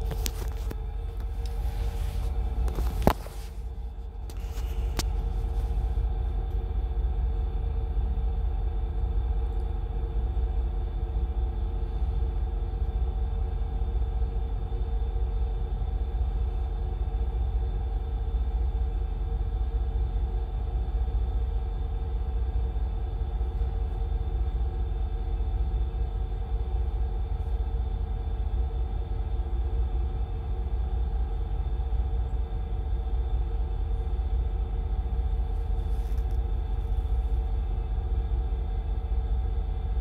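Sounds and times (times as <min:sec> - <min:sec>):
multi-tone hum: 0:00.0 - 0:40.0
ship machinery rumble: 0:00.0 - 0:40.0.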